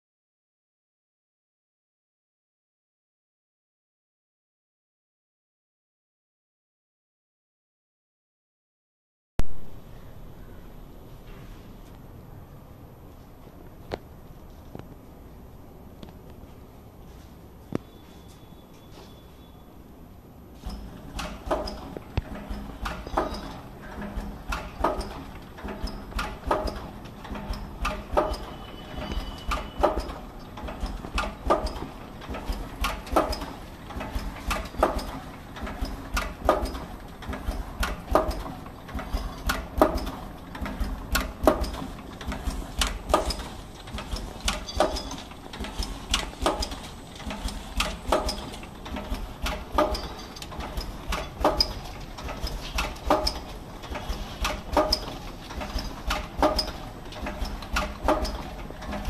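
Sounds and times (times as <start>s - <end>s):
packing machine clacking: 20.6s - 59.0s.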